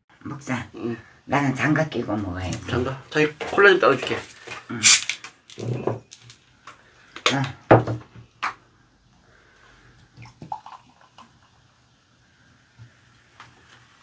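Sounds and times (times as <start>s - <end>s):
cola pouring and fizzing: 10.0s - 12.2s.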